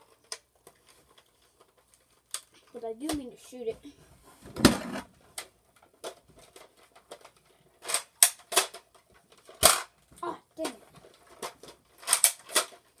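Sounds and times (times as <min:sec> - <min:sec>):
toy thump and plastic clatter: 0:01.1 - 0:03.3, 0:04.5 - 0:13.0
sharp plastic clicks: 0:05.4 - 0:10.0, 0:10.6 - 0:13.0.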